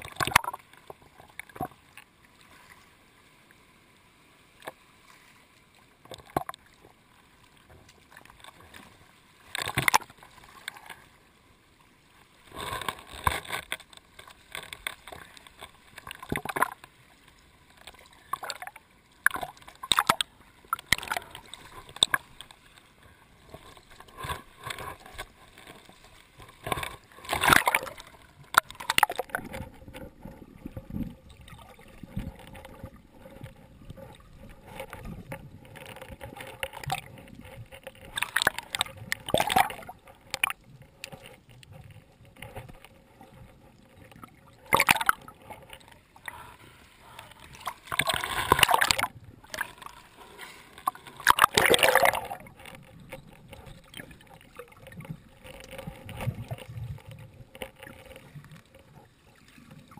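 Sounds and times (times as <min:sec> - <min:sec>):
seawater splashing and sloshing: 0:11.9 - 0:59.9.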